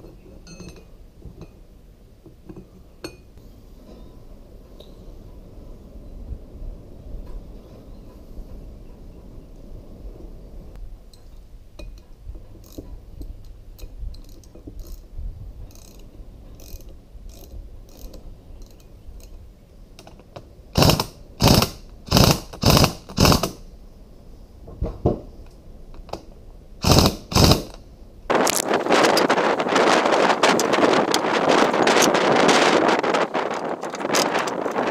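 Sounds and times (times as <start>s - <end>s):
wind noise on microphone: 3.7s - 19.7s, 20.7s - 34.9s
pneumatic impact wrench hammering: 20.8s - 23.6s, 26.8s - 27.8s.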